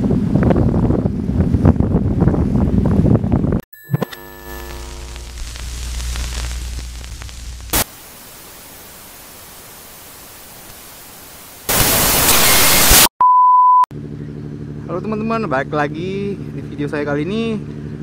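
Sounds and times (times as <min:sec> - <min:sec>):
white-noise static burst: 0:04.0 - 0:13.1
faint hiss: 0:04.7 - 0:13.0.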